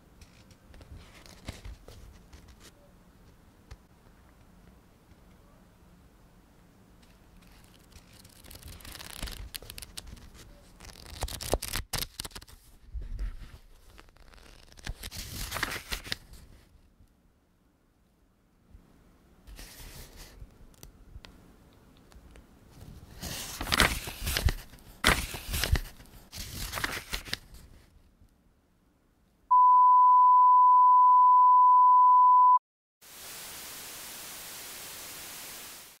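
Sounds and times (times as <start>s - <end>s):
paper and board rustling: 0.2s - 2.8s, 7.0s - 16.7s, 19.5s - 20.4s, 22.7s - 28.0s
test-tone beep: 29.5s - 32.6s
television static hiss: 33.1s - 36.0s.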